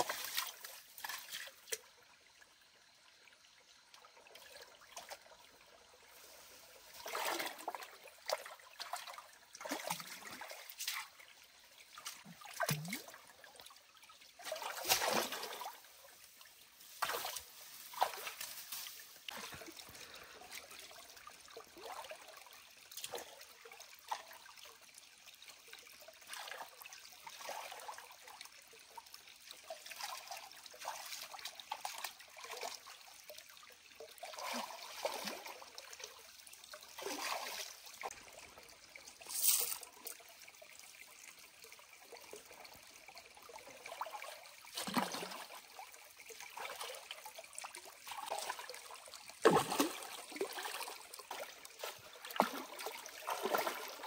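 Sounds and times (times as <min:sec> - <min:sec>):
water splashes: 0:00.0 - 0:02.4, 0:04.0 - 0:24.8, 0:25.7 - 0:54.0
stream water trickling: 0:00.0 - 0:54.0.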